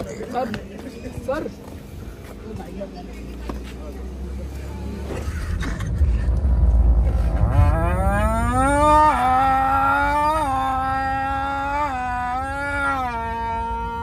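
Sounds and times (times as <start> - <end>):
car cabin rumble: 4.8 - 14.0
person holding a moo-like note: 7.3 - 14.0.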